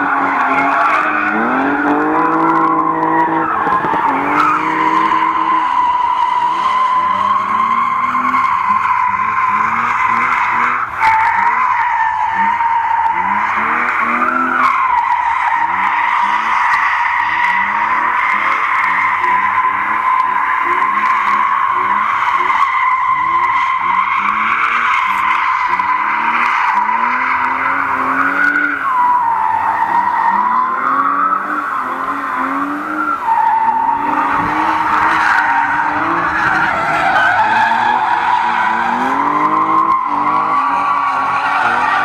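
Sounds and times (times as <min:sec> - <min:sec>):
car engine revving: 0:00.0 - 0:42.0
tyres squealing: 0:00.0 - 0:42.0.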